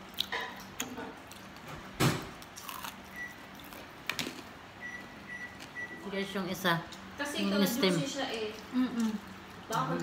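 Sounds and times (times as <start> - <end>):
chewing crisp food: 0.0 - 4.5, 8.4 - 10.0.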